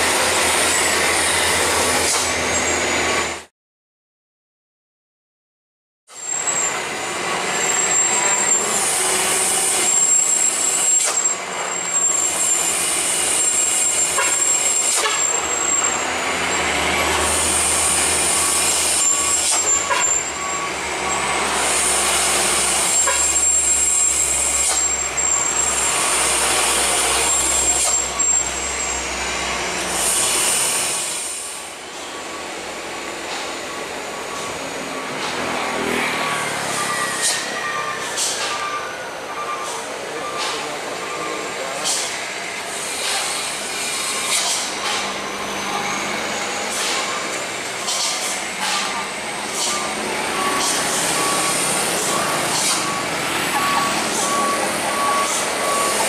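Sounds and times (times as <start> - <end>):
diesel truck engine rumbling: 11.4 - 42.8, 43.6 - 56.0
air brake hisses: 29.9 - 31.7, 36.7 - 38.6, 41.8 - 45.1, 47.8 - 53.0.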